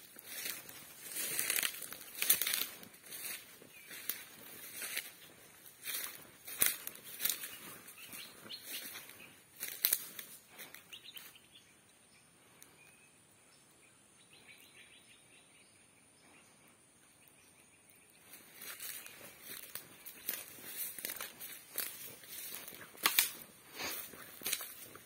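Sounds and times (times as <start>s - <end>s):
footsteps crunching through undergrowth: 0.0s - 11.4s, 18.2s - 25.0s.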